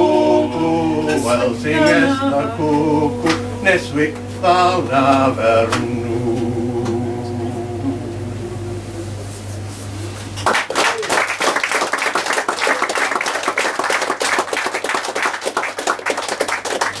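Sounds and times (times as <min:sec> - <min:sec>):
held musical note: 0:00.0 - 0:09.7
low hum: 0:00.0 - 0:10.4
audience clapping: 0:03.2 - 0:03.5, 0:10.4 - 0:17.0.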